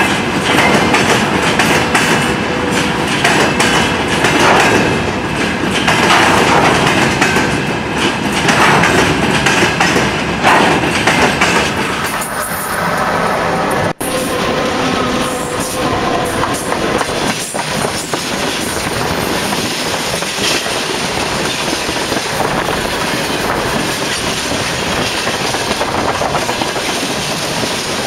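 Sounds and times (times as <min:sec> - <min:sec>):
steel wheels rumbling on rails: 0:00.0 - 0:28.0
sharp clacks: 0:05.8 - 0:12.3.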